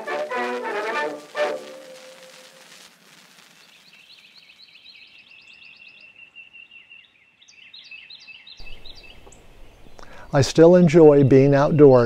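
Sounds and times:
bird chirps: 3.5 - 12.0.

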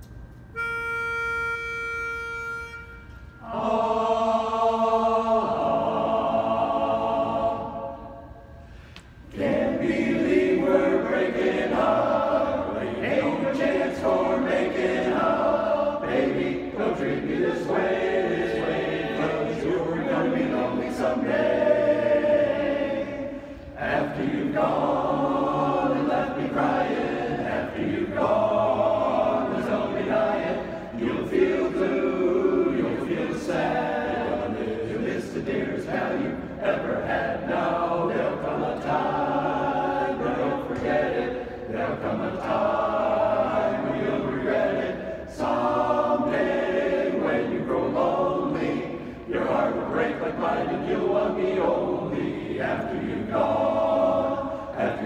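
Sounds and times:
pitch pipe note: 0.5 - 3.6
men's chorus singing a cappella: 3.4 - 8.3, 9.3 - 55.0.

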